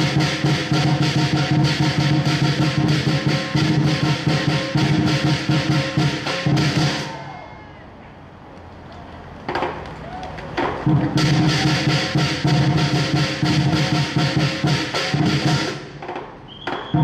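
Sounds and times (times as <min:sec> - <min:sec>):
big drum beating fast: 0:00.0 - 0:07.2, 0:10.6 - 0:17.0
cymbals clashing: 0:00.0 - 0:07.4, 0:10.9 - 0:16.0.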